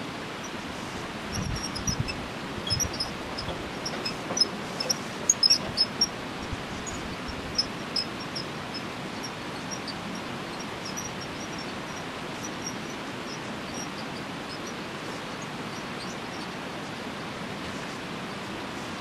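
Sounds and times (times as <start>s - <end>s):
steady rushing background noise: 0.0s - 19.0s.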